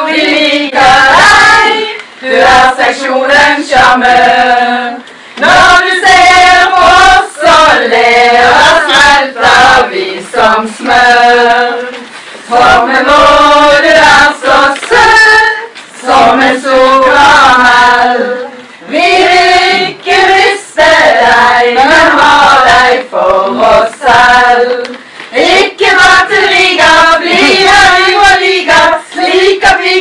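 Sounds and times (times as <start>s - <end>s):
women singing together: 0.0s - 30.0s.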